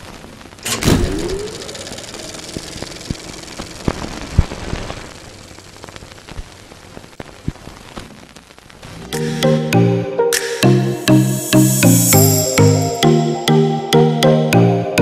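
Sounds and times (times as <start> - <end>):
crackling hiss with pops: 0.0 - 9.6, 10.4 - 13.2
electronic music with a beat: 9.2 - 14.3.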